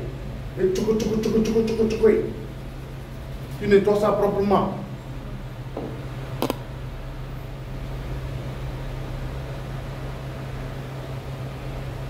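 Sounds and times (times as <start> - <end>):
machinery hum and hiss: 0.0 - 12.0
sharp click: 6.4 - 6.7.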